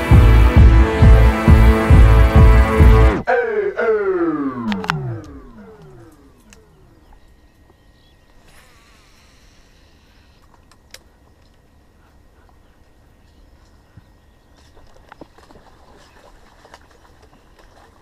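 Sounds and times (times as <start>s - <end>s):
faint outdoor background: 0.0s - 18.0s
tone sliding down with echoes: 1.0s - 6.6s.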